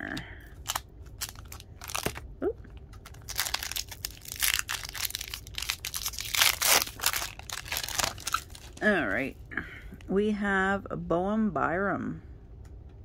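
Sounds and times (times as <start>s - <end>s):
wrapper crinkling and tearing: 0.5s - 9.2s.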